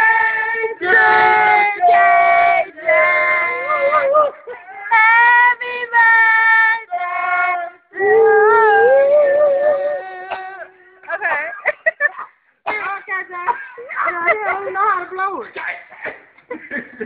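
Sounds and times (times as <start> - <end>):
child singing long high notes: 0.8 - 6.0, 6.8 - 10.8.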